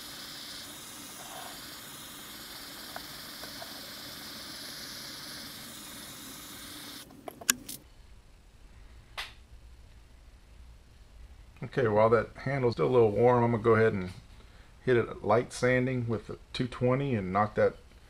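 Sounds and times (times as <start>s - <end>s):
gas torch hissing: 0.0s - 7.8s.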